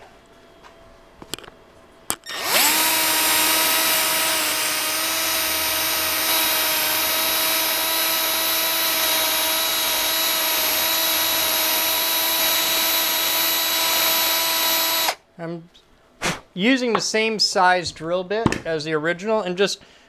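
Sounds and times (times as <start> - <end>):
drill clicks: 2.1 - 15.2
power drill spinning: 2.2 - 15.2.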